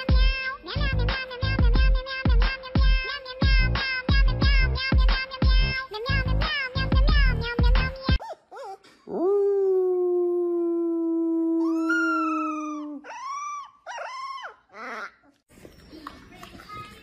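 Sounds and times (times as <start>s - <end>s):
puppy howling: 8.2s - 15.2s
man howling: 9.1s - 13.1s.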